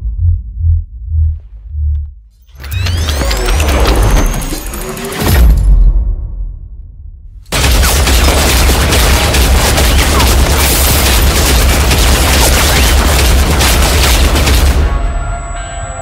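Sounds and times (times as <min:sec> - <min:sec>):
automatic gunfire: 0:07.5 - 0:14.9.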